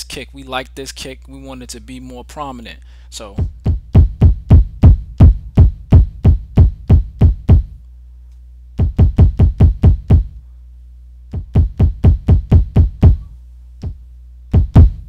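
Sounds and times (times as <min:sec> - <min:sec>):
low hum: 0:02.8 - 0:15.0
kick drum hits: 0:03.4 - 0:07.8, 0:08.8 - 0:10.4, 0:11.3 - 0:15.0.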